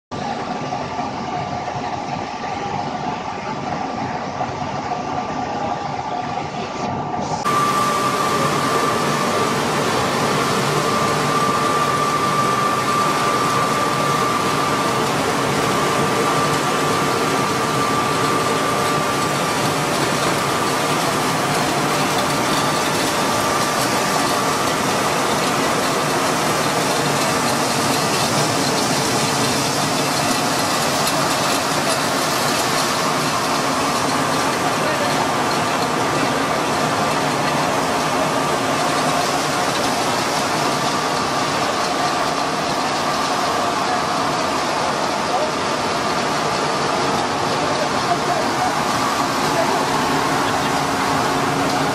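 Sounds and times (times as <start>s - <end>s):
high machine whine: 0.1s - 51.9s
loud steady machine noise: 0.1s - 51.9s.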